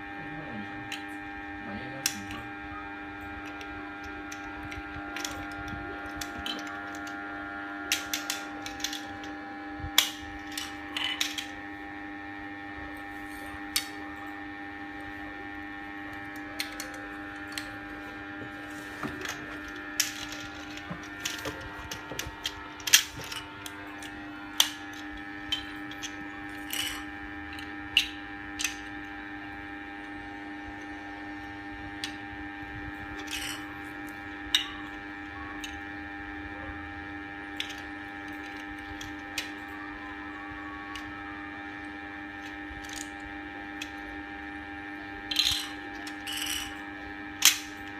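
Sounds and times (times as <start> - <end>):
steady hum: 0.0 - 47.9
plastic bricks clicking on tiled floor: 3.4 - 7.2, 7.9 - 9.3, 10.0 - 11.5, 19.2 - 23.4, 45.2 - 46.7, 47.4 - 47.9.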